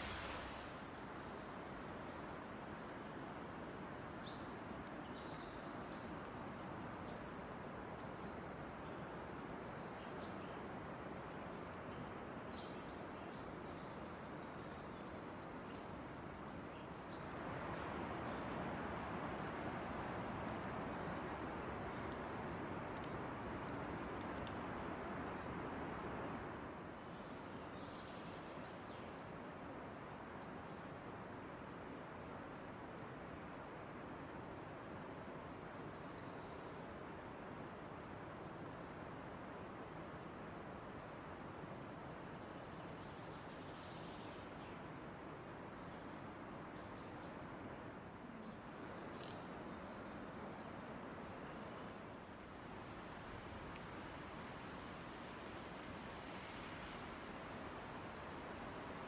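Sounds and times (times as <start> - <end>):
forest ambience rushing: 0.0 - 2.8
steady outdoor hiss: 0.0 - 59.0.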